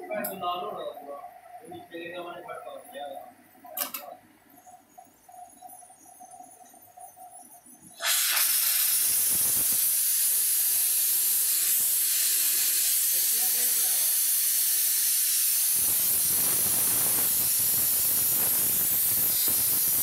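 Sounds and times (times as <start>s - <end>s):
torch flame hissing: 7.9s - 20.0s.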